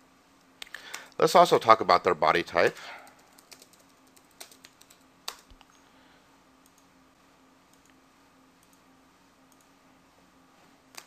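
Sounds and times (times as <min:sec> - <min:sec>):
faint electrical hum: 0:00.0 - 0:11.0
computer mouse clicks: 0:03.1 - 0:05.8, 0:06.6 - 0:06.9, 0:07.7 - 0:08.0, 0:09.5 - 0:09.7.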